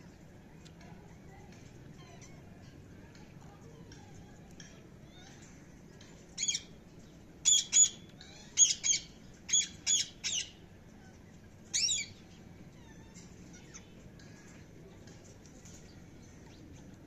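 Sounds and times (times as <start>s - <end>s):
parakeets squawking: 7.5s - 10.6s.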